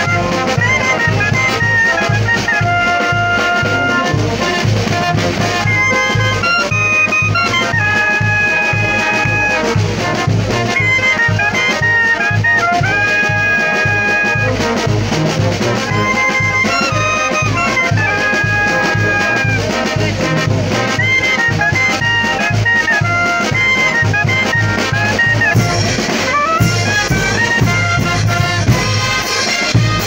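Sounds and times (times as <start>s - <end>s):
brass band playing: 0.0s - 30.0s
clarinet and saxophone melody: 0.0s - 30.0s.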